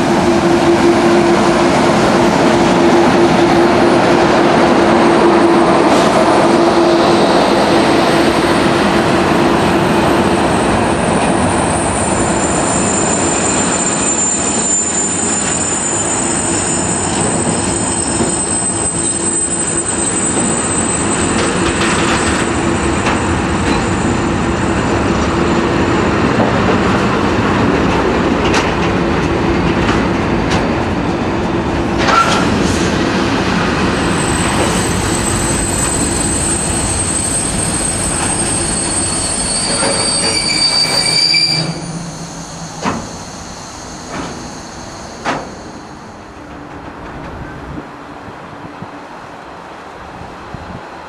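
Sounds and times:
freight train rumbling past: 0.0s - 51.0s
high-pitched wheel squeal: 11.8s - 22.5s, 34.1s - 46.2s.

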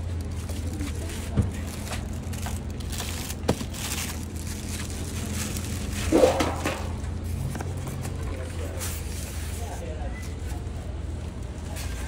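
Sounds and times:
foam packing crinkling: 0.0s - 7.0s
low background hum: 0.0s - 12.0s.

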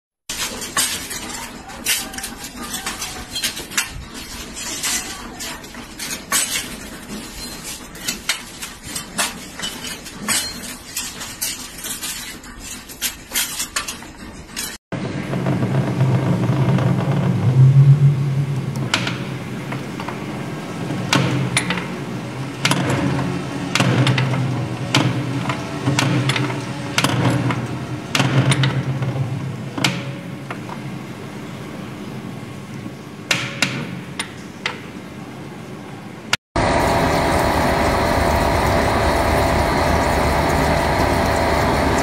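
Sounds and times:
steel rods clanking: 0.3s - 14.8s.

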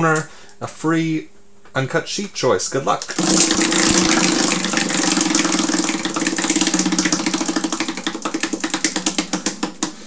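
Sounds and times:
prize wheel ticking: 3.2s - 9.7s.

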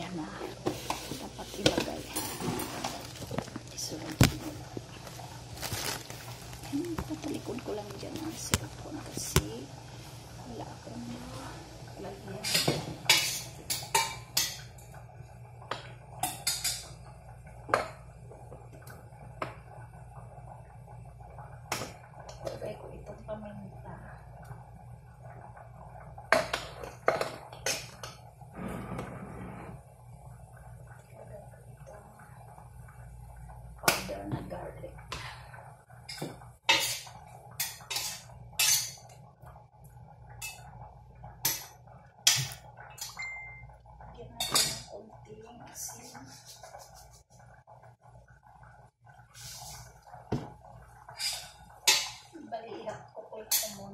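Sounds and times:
utensils and pots clinking: 0.0s - 9.5s, 12.2s - 14.9s, 15.8s - 17.0s, 36.1s - 39.2s, 40.4s - 40.7s, 41.4s - 43.7s, 44.4s - 45.0s, 51.1s - 52.4s, 53.4s - 53.9s.

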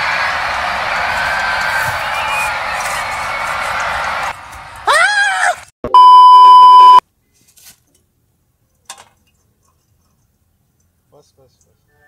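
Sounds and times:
electronic bleep: 5.9s - 7.0s.

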